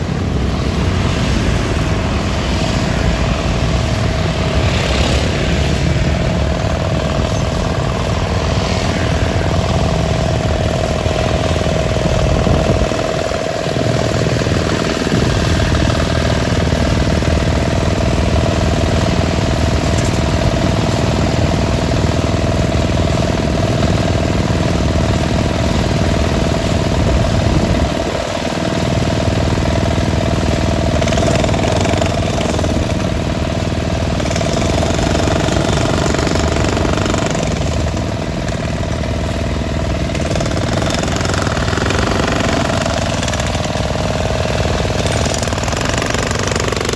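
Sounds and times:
motorbikes passing: 0.0s - 35.4s
generator engine running: 0.0s - 46.9s
demolition hammer hammering brick: 30.5s - 39.0s, 40.0s - 46.9s.

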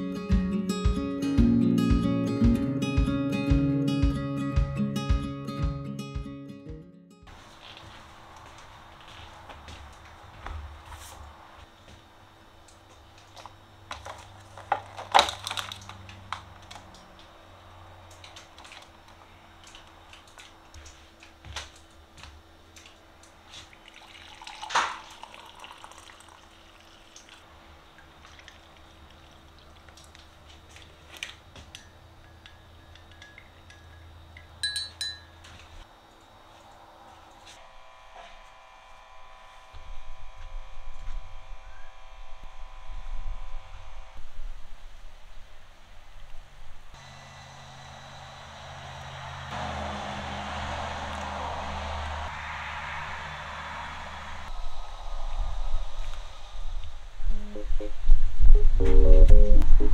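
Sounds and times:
steady multi-tone hum: 7.3s - 49.6s
coffee pouring into glass mug: 23.7s - 30.2s
glass dishes clinking: 31.8s - 35.4s.

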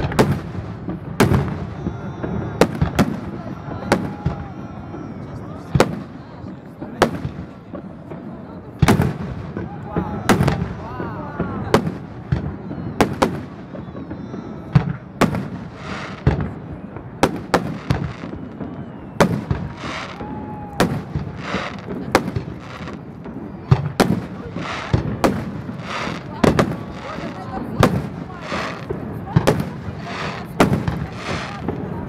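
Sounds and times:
firework bangs: 0.0s - 32.0s
firework crackling hiss: 15.2s - 16.5s, 17.1s - 32.0s.

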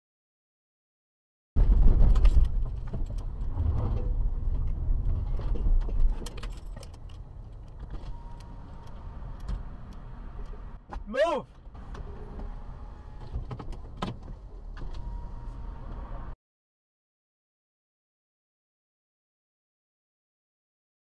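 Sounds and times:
car engine and road rumble: 1.6s - 16.4s.

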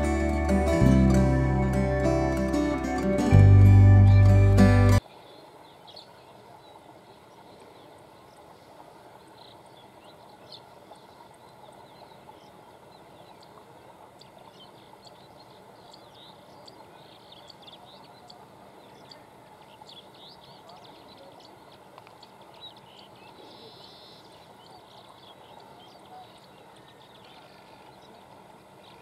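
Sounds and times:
small birds chirping: 5.2s - 29.0s.

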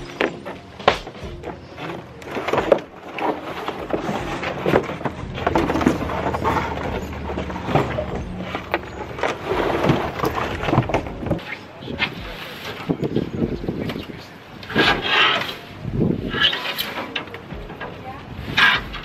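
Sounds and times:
debris clattering into metal dumpster: 0.0s - 11.4s.

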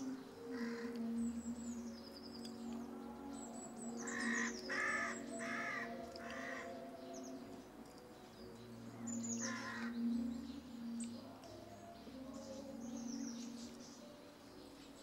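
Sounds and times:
crow cawing: 4.1s - 6.8s, 9.4s - 9.9s.

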